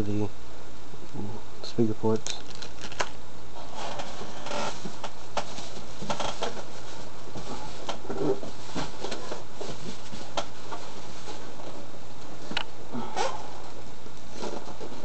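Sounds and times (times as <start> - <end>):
rustling plastic bags: 2.2 - 3.2.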